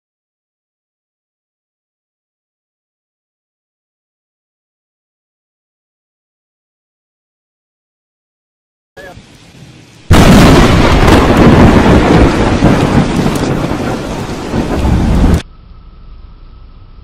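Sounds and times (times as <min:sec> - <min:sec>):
heavy rain: 0:09.0 - 0:15.4
loud thunder crack and rumble: 0:10.1 - 0:15.4.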